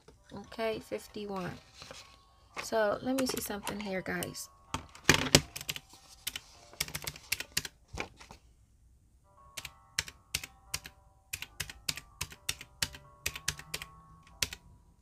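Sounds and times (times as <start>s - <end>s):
calculator keys clicking: 3.1s - 7.7s, 9.6s - 14.6s.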